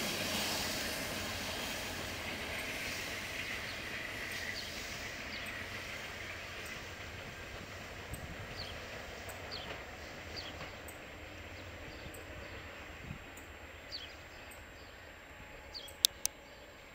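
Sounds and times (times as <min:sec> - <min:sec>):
passenger train rumbling: 0:00.0 - 0:16.9
birds chirping: 0:15.7 - 0:16.7.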